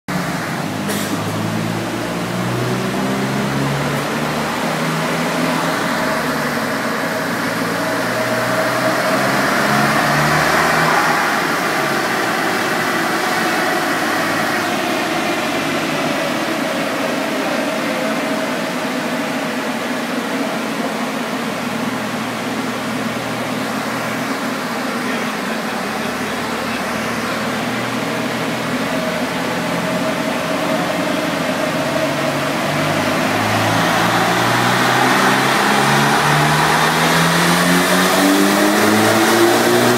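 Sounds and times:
car engine revving on dyno: 0.1s - 39.9s.

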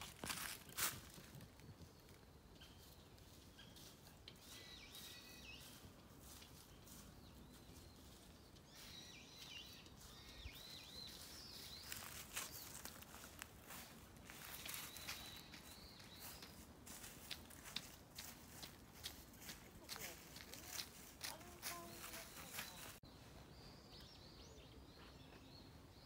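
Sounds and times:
faint bird chirping: 0.3s - 26.0s.

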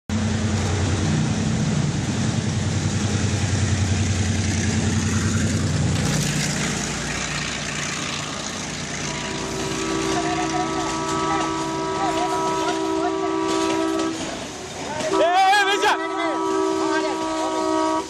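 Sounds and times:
diesel locomotive engine drone: 0.1s - 18.0s
rail noise hiss: 0.1s - 18.0s.

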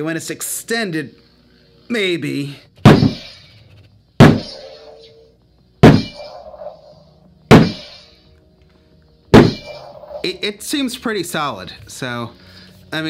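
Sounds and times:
plastic toy whacking hard surface: 2.8s - 3.4s, 4.2s - 4.6s, 5.8s - 6.3s, 7.5s - 8.0s.

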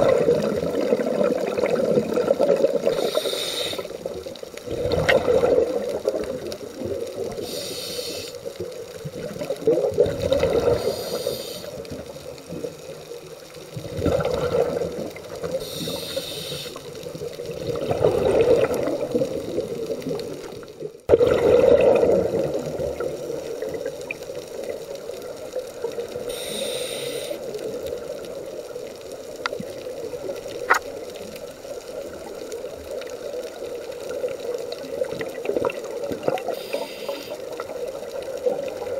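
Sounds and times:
rush of bubbles: 0.0s - 28.9s, 29.5s - 38.9s
diver breathing through regulator: 2.8s - 4.0s, 7.4s - 8.4s, 10.6s - 11.8s, 15.6s - 16.9s, 26.3s - 27.4s, 36.5s - 37.4s.

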